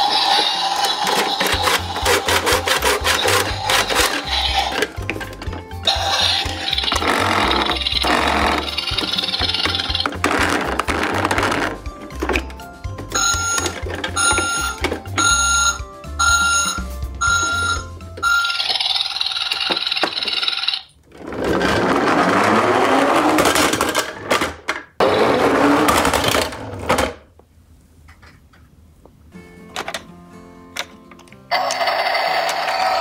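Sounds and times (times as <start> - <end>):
toy hissing and whirring: 0.0 - 5.0, 5.9 - 10.2, 18.3 - 20.9, 31.5 - 33.0
electronic toy beeps: 13.1 - 19.6.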